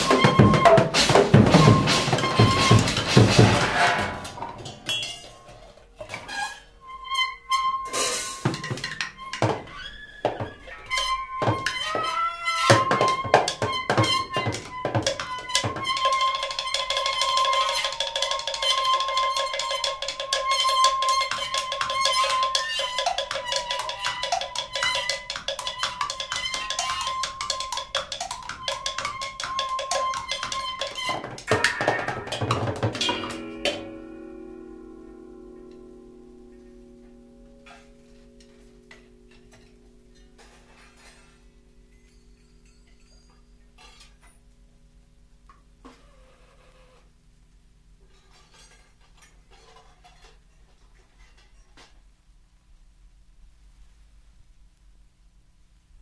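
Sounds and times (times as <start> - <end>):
high held tone: 0.0 - 3.6, 25.9 - 43.5
percussion clicks and strikes: 0.0 - 6.4, 7.6 - 44.5.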